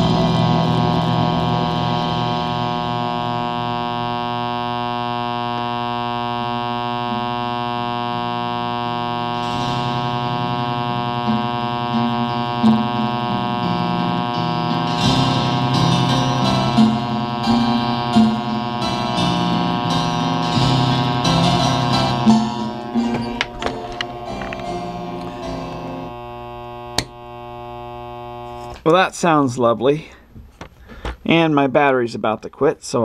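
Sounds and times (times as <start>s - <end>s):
music over loudspeaker: 0.0s - 3.4s, 9.3s - 26.2s
steady mains hum: 0.0s - 33.0s.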